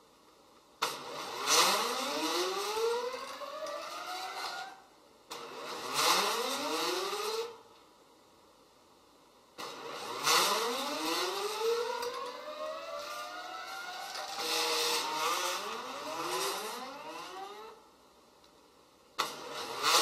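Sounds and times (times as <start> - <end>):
stepper motors whining: 1.1 - 4.8, 9.6 - 17.8.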